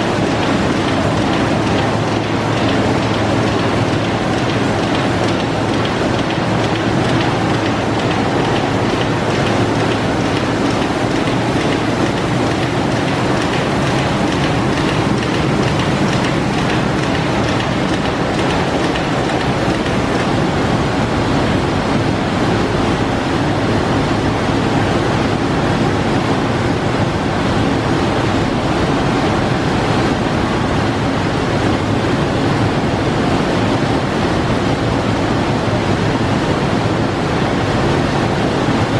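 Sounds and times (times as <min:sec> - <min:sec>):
printing press machine din: 0:00.0 - 0:38.9
fast even ticking: 0:00.3 - 0:20.2.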